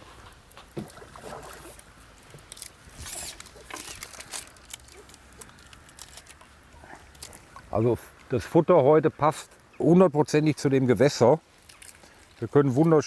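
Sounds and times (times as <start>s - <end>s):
fish splashing at water surface: 0.6s - 5.8s.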